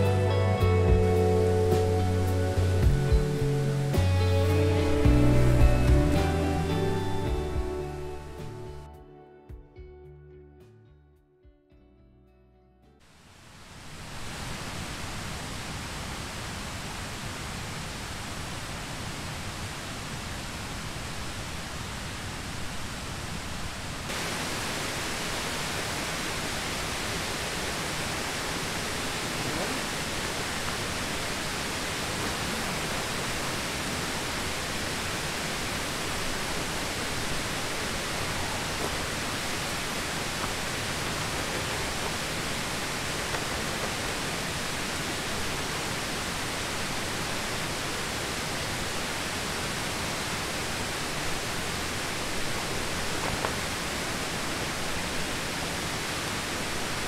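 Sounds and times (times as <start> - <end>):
mountain stream rushing: 0.0 - 8.9, 13.0 - 57.0.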